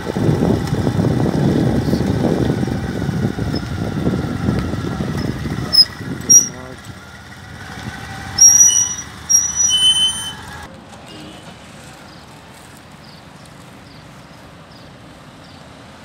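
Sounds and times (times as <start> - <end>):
traffic hum: 0.0 - 16.0
high-pitched squeals: 5.2 - 6.6, 8.3 - 10.7
faint high chirps: 8.4 - 10.4.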